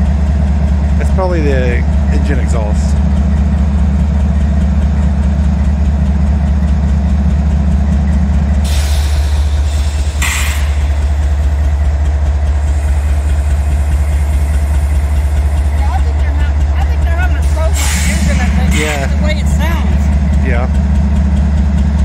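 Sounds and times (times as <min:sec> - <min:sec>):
locomotive engine idling: 0:00.0 - 0:22.0
short hisses: 0:08.7 - 0:11.2.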